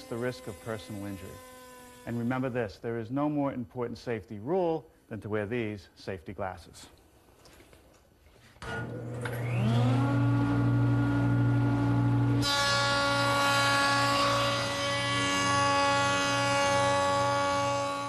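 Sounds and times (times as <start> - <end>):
jointer motor hum: 0.0 - 2.4, 8.6 - 18.0
jointer cutting whine: 0.0 - 2.5, 8.6 - 18.0.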